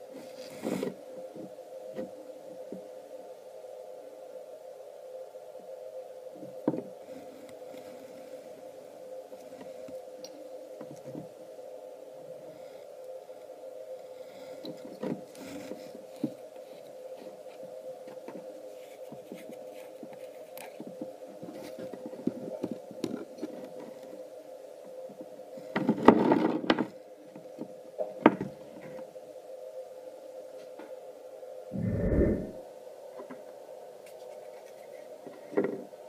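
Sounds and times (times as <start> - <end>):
steady background hum: 0.0 - 36.0.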